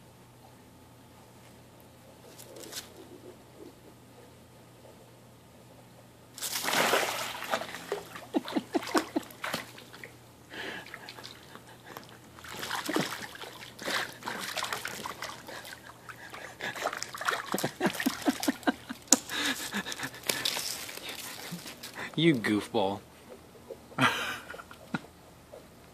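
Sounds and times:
pool water splashing: 6.4 - 22.6.

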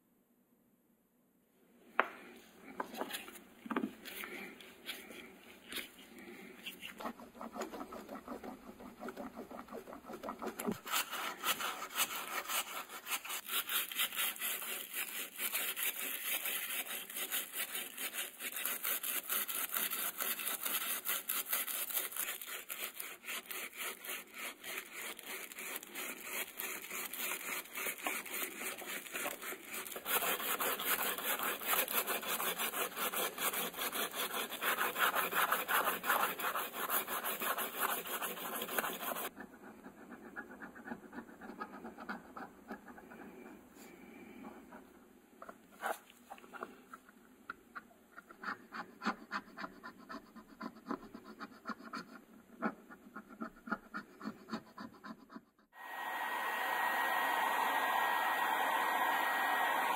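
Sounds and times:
sandpaper rubbing on plastic: 4.1 - 39.4.

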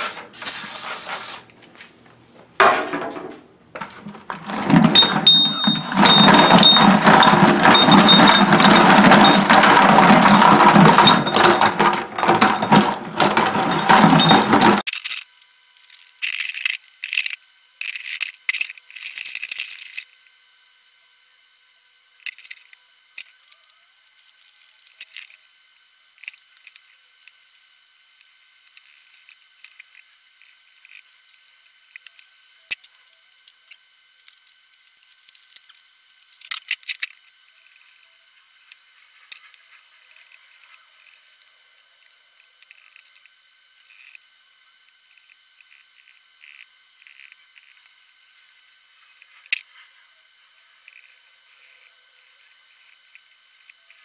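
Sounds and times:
wire brush scratching: 0.0 - 1.5
metal parts clinking and rattling: 3.9 - 20.0.

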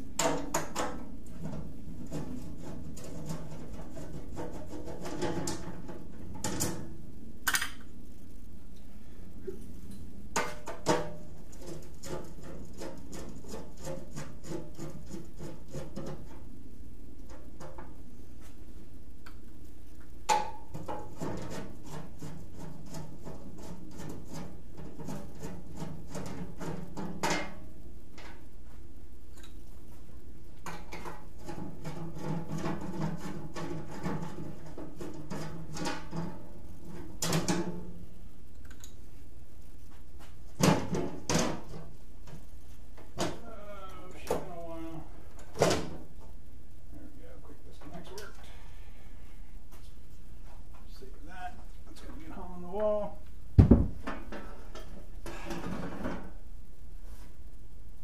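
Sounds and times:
steady low hum: 0.0 - 58.0
clicks and knocks on metal: 0.2 - 6.9
sharp knock on workbench: 53.6 - 54.0.

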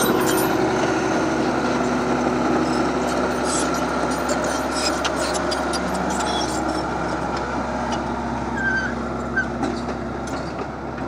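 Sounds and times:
short high squeaks: 0.0 - 0.6, 2.5 - 7.2, 8.5 - 9.9
bulldozer diesel engine running: 0.0 - 11.0.

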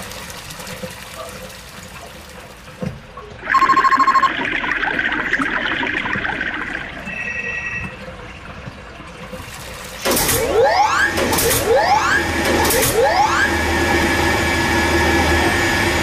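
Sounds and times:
water rushing through pipes: 0.0 - 16.0
short electronic beep: 3.4 - 4.4, 7.0 - 8.0
fast electronic trilling ring: 3.5 - 4.4.

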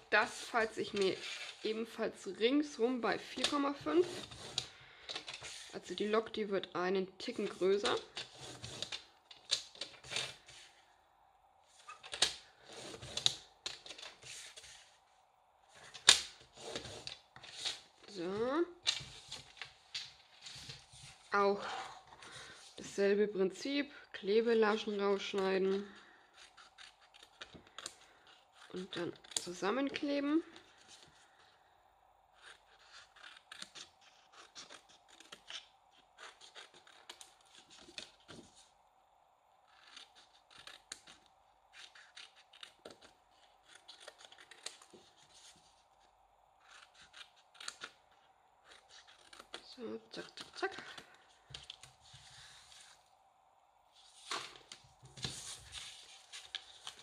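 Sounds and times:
scissors snipping cardstock: 46.6 - 48.0, 48.6 - 51.0.

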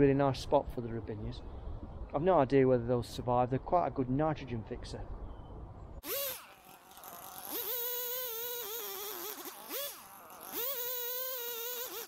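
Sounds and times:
chainsaw engine revving: 6.0 - 12.0.

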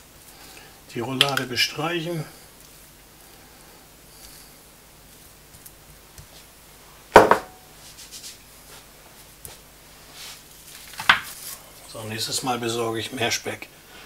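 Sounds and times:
loud sharp knock: 7.2 - 7.6.

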